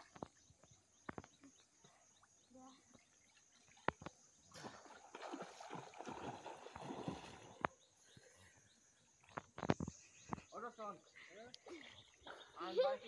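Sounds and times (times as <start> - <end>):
water splashing from swimming: 2.1 - 7.8.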